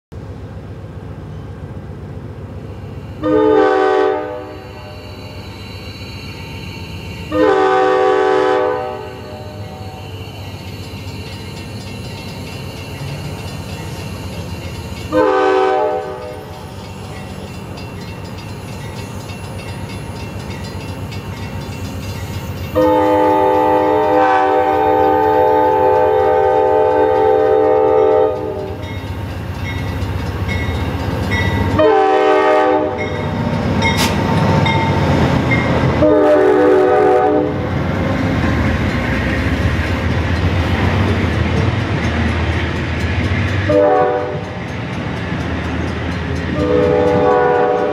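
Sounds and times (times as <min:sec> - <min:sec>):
locomotive air horn blasts: 0:03.2 - 0:05.4, 0:07.3 - 0:10.2, 0:15.1 - 0:16.5, 0:22.8 - 0:28.8, 0:31.7 - 0:33.1, 0:36.0 - 0:37.6, 0:43.7 - 0:44.5, 0:46.6 - 0:47.9
train wheels clattering on rails: 0:10.1 - 0:36.2, 0:37.6 - 0:47.9.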